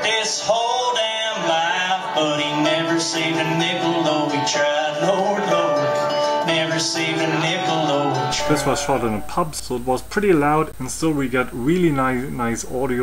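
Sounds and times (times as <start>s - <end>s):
man singing: 0.0s - 9.6s
acoustic guitar: 0.0s - 12.3s.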